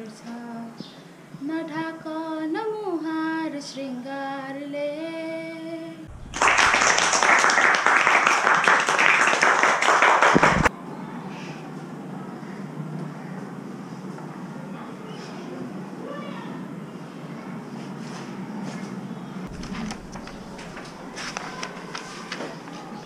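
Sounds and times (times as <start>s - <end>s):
girl singing alone: 0.0s - 6.1s
people clapping: 6.1s - 10.7s, 19.5s - 23.0s.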